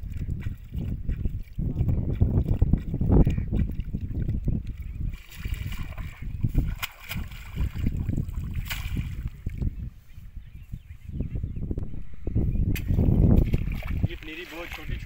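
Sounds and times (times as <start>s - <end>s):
muddy water sloshing and splashing: 0.0s - 9.8s, 12.8s - 15.0s
wind rumble on microphone: 0.0s - 15.0s.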